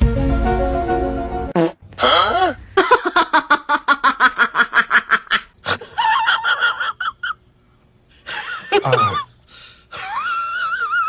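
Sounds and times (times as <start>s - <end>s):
person laughing: 2.0s - 7.4s, 8.3s - 9.3s, 9.9s - 11.0s.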